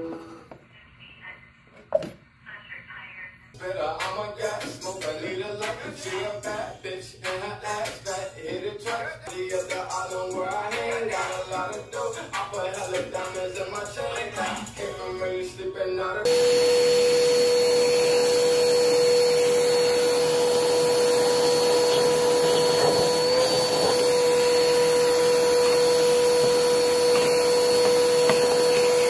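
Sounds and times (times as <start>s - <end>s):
vacuum cleaner whining: 16.2s - 29.0s
hose sucking debris: 16.3s - 29.0s.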